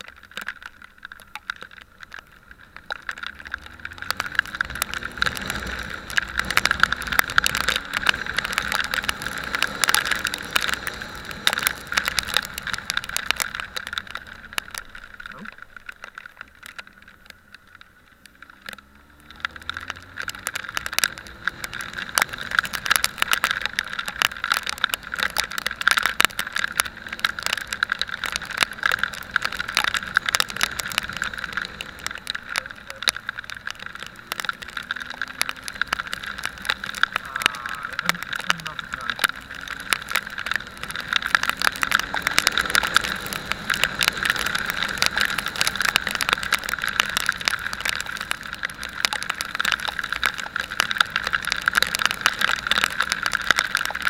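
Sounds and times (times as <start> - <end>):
wind and road noise: 0.0 - 54.0
motorcycle engine accelerating: 3.1 - 14.0.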